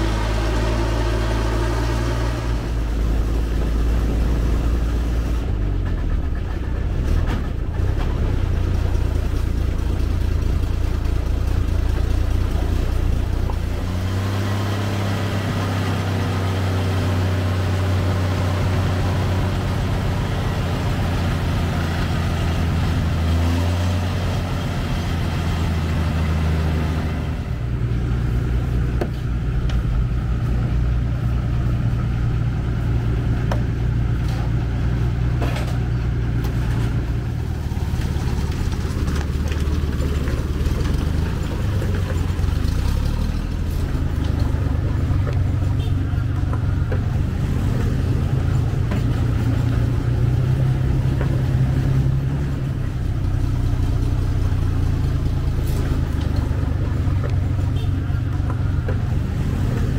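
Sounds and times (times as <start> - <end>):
truck engine running: 0.0 - 59.9.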